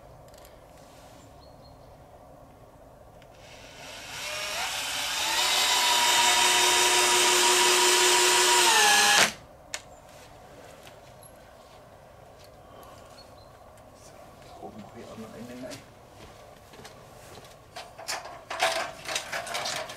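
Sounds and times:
cordless drill whining: 3.3 - 9.4.

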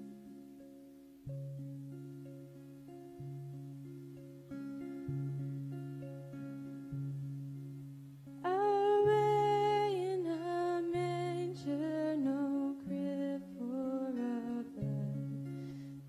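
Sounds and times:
acoustic guitar: 0.0 - 16.0
woman singing: 8.4 - 15.6.

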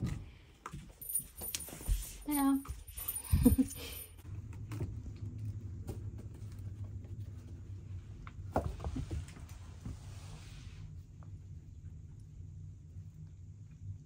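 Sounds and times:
kittens tapping and scuffling: 0.0 - 10.0.

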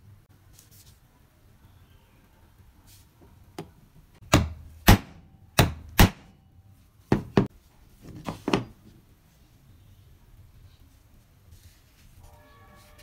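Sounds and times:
sharp knocks on wooden bench: 7.1 - 7.5.

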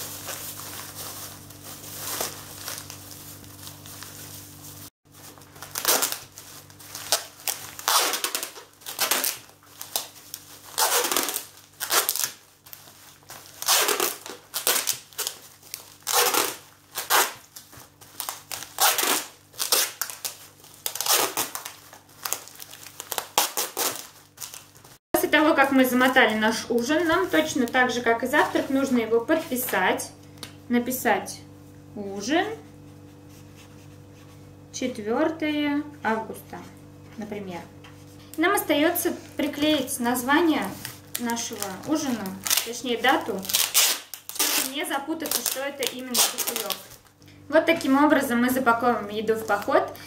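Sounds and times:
plastic bag crinkling: 0.0 - 29.8, 38.4 - 47.2
packing tape pulled off roll: 5.3 - 25.0, 40.7 - 47.1.

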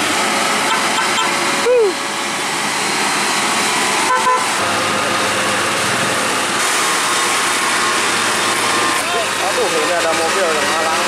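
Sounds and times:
diesel truck engine climbing: 0.0 - 11.0
truck horn toot: 0.6 - 1.4, 4.0 - 4.7.

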